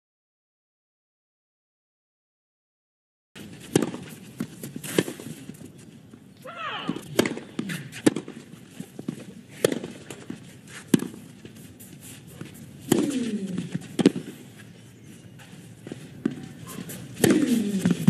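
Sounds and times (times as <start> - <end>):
racket hitting tennis ball: 3.4 - 5.6, 6.4 - 14.6, 15.4 - 18.0
player grunting: 6.4 - 7.1.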